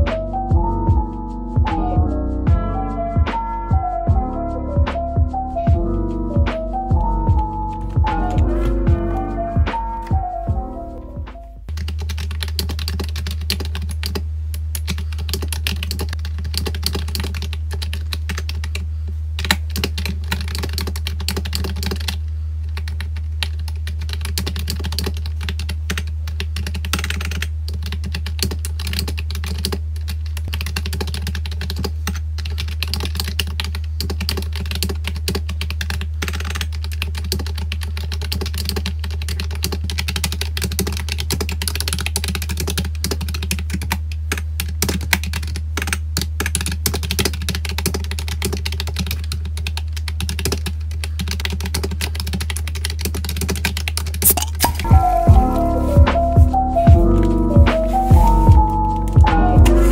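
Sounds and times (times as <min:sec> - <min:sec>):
steady low hum: 0:00.0 - 0:34.0
fast keyboard typing: 0:06.6 - 0:08.9, 0:11.6 - 0:55.7, 0:56.4 - 0:59.9.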